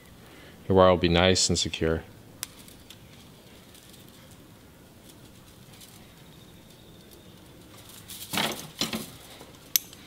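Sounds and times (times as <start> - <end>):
light ticks of wire: 2.4 - 4.4, 5.0 - 10.0
faint rustles: 2.4 - 10.0.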